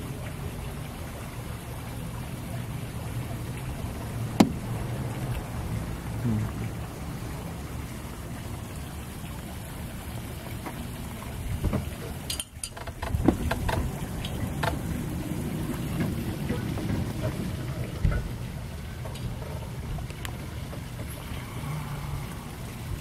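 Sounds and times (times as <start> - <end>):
wind rumbling on microphone: 11.2 - 23.0.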